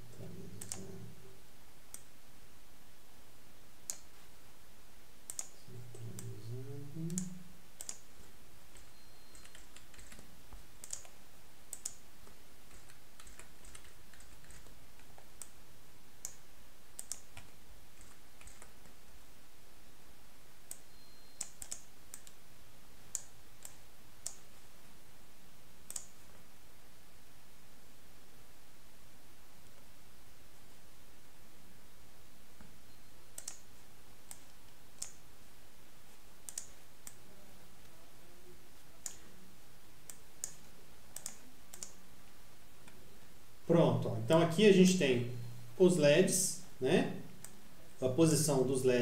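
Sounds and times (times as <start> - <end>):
computer mouse clicks: 0.1 - 1.1, 3.8 - 4.2, 5.3 - 6.4, 7.0 - 15.6, 16.2 - 16.4, 17.0 - 19.0, 20.7 - 22.4, 23.1 - 24.5, 25.8 - 26.4, 32.6 - 35.2, 36.4 - 37.2, 39.0 - 39.4, 40.0 - 42.0, 47.4 - 47.6
keyboard keystrokes: 8.7 - 15.6, 17.0 - 18.9, 20.7 - 22.4, 33.4 - 33.7, 40.1 - 42.0.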